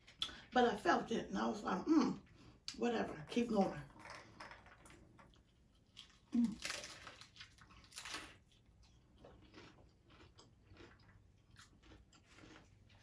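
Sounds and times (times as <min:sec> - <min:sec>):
chewing crunches: 0:05.3 - 0:13.0
crunchy taco bite: 0:05.9 - 0:13.0.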